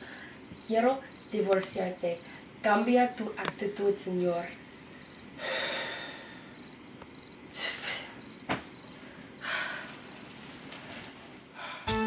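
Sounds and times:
crickets chirping: 0.0s - 11.9s
man breathing heavily: 5.0s - 6.8s, 8.9s - 10.2s, 11.4s - 12.0s.

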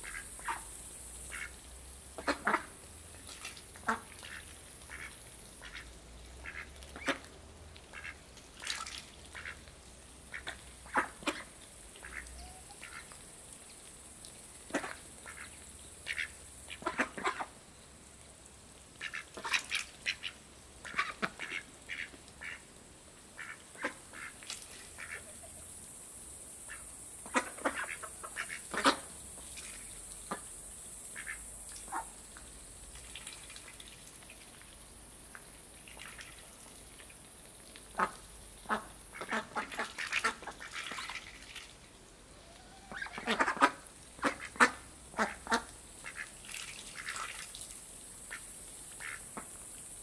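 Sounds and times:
ducks quacking: 2.2s - 2.7s, 3.8s - 7.3s, 7.9s - 8.7s, 9.3s - 9.6s, 10.3s - 13.2s, 14.7s - 17.5s, 19.0s - 22.6s, 23.4s - 25.6s, 26.7s - 29.1s, 38.0s - 41.1s, 42.8s - 47.3s.

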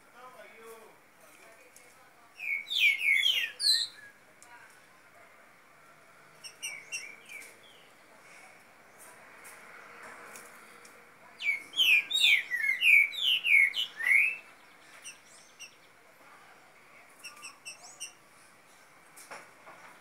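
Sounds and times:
bird singing sweeping notes: 2.4s - 4.2s, 11.4s - 16.0s.

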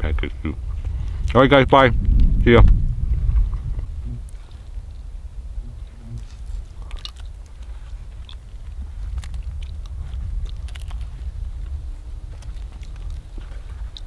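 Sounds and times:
sharp crunches: 5.6s - 14.0s
chewing crisp fish skin: 6.0s - 14.0s.

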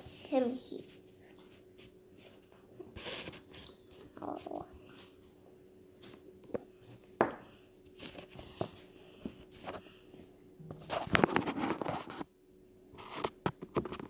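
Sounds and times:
plastic toy figures rustling and clicking: 10.8s - 12.2s.

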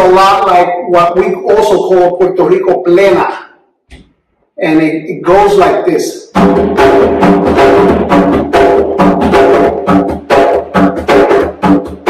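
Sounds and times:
hand drum playing: 6.4s - 12.0s.

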